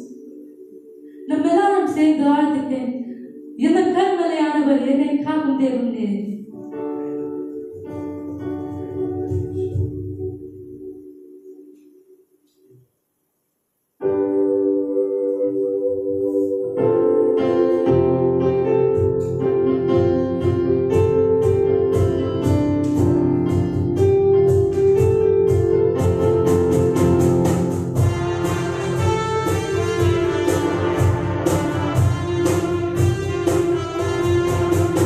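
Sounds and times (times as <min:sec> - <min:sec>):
keyboard chords: 0:00.0 - 0:12.8, 0:14.0 - 0:35.0
steady beat: 0:07.8 - 0:10.5, 0:18.9 - 0:35.0.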